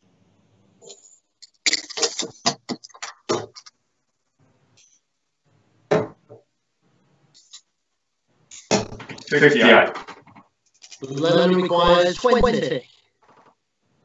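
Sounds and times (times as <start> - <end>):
darts striking dartboard: 5.9 - 6.4.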